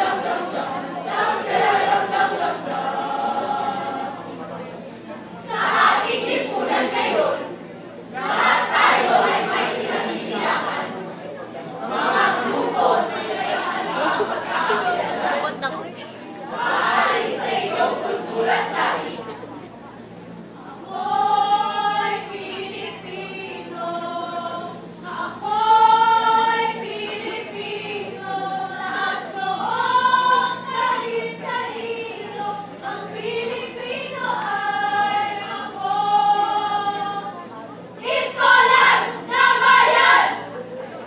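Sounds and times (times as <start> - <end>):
choir singing long held notes: 0.0 - 4.6, 5.4 - 11.0, 11.8 - 15.6, 16.5 - 19.3, 20.7 - 40.5.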